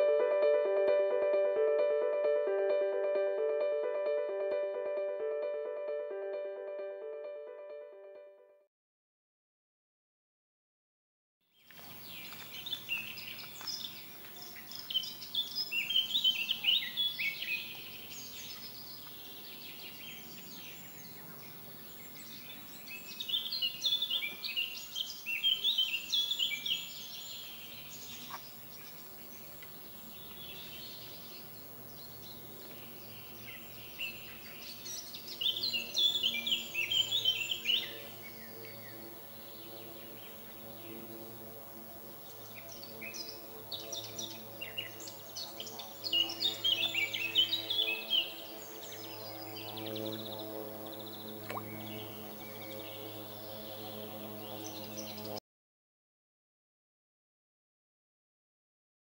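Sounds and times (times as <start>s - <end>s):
songbird chirping: 11.5s - 55.4s.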